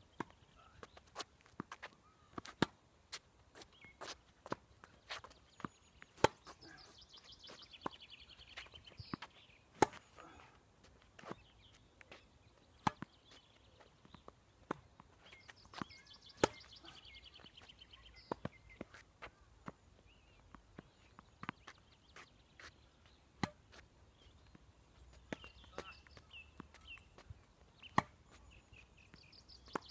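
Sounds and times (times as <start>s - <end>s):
tennis ball bouncing: 1.5s - 2.8s, 5.2s - 6.6s, 8.6s - 10.1s, 12.8s - 13.2s, 14.1s - 16.7s, 23.4s - 23.8s, 27.9s - 28.2s
tennis ball hit by racket: 6.2s - 6.5s, 9.8s - 10.0s, 15.8s - 16.7s, 23.4s - 23.6s.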